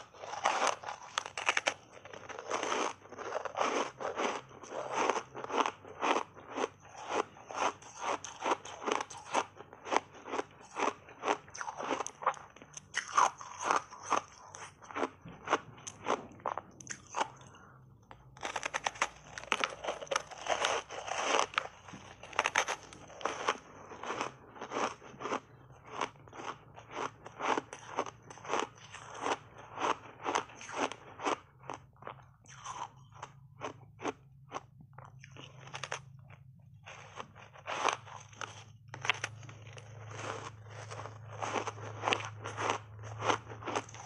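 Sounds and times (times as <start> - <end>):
crunchy chewing of ice bar: 0.0 - 44.0.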